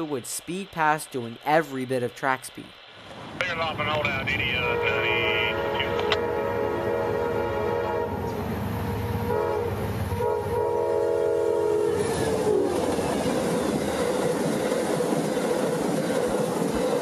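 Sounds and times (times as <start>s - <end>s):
passenger cars rushing and clattering: 2.9s - 6.2s
train horn blasts: 4.5s - 12.8s.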